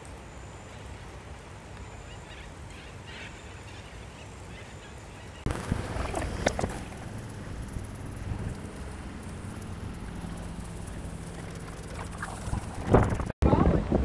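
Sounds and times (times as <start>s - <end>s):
low rush of outdoor noise: 0.0s - 14.0s
faint bird calls: 1.8s - 6.2s
loud rumble: 5.5s - 14.0s.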